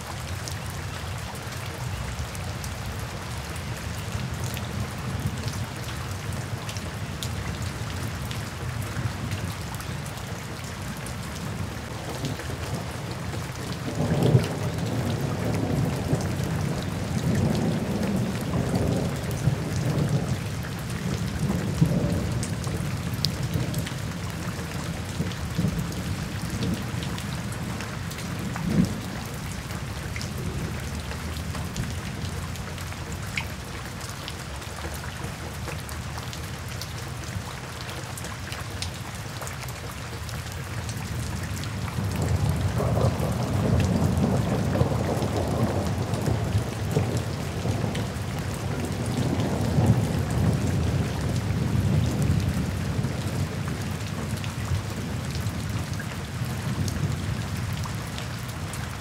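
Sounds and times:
rain on foliage: 0.0s - 59.0s
distant thunder rumbling: 13.8s - 29.4s, 42.0s - 53.6s.

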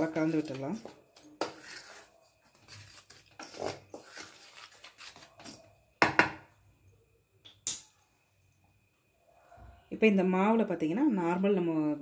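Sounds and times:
wooden spoon scraping in bowl: 0.0s - 5.6s.

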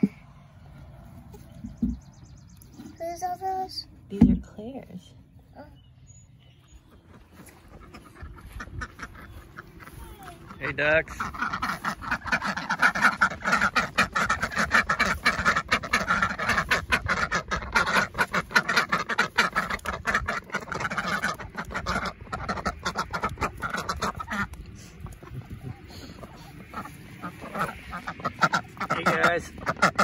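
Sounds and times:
ducks quacking: 6.6s - 30.0s.

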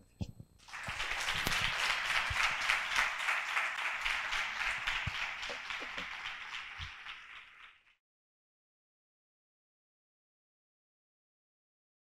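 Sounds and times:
audience applauding: 0.6s - 8.0s.

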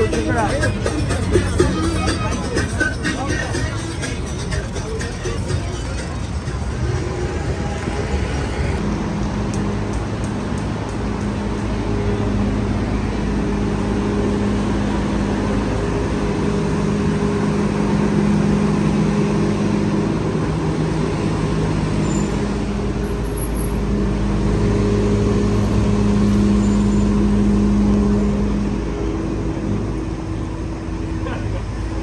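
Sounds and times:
city street traffic hum: 0.0s - 32.0s.

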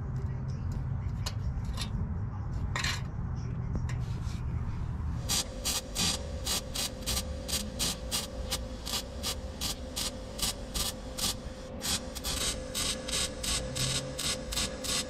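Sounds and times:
steady hum: 0.0s - 15.0s
arc welder crackling: 5.2s - 15.0s.

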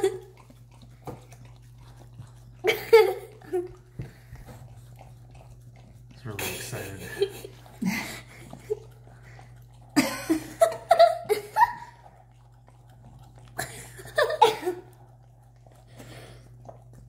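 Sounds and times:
dog licking and lapping: 0.0s - 17.0s
person giggling: 2.6s - 3.7s, 6.4s - 8.9s, 10.0s - 12.0s, 13.6s - 14.9s.

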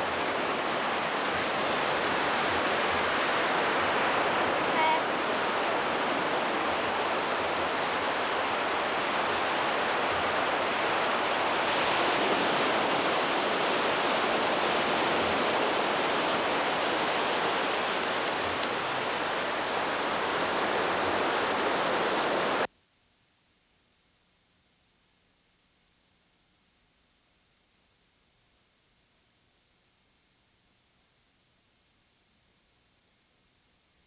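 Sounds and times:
surf rushing at beach: 0.0s - 22.7s.

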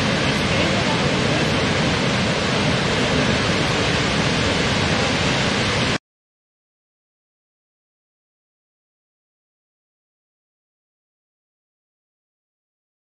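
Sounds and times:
waterfall rushing: 0.0s - 6.0s.

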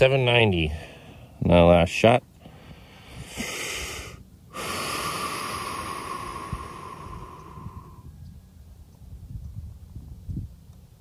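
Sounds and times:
man breathing: 0.7s - 1.4s, 2.4s - 8.1s.

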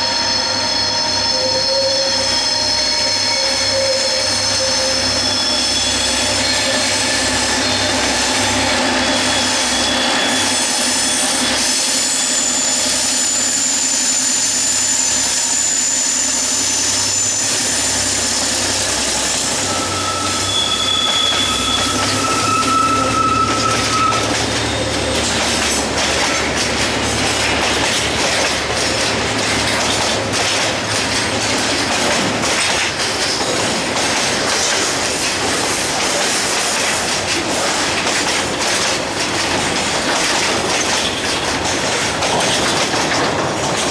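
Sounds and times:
high wheel squeal: 0.0s - 31.4s
train wheels clacking over rails: 3.5s - 43.9s.

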